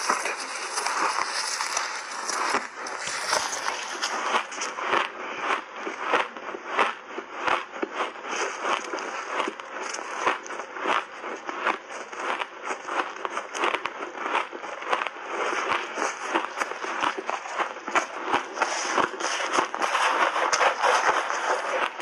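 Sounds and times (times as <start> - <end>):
ice crunching while chewed: 0.0 - 22.0.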